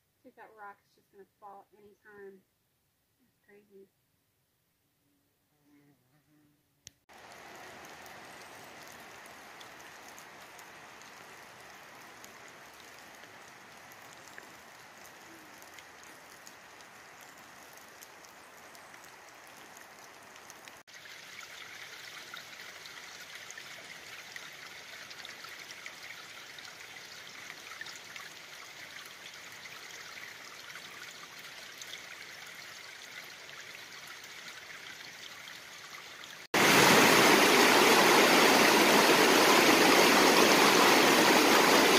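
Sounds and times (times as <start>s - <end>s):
water dripping and trickling: 7.1s - 41.9s.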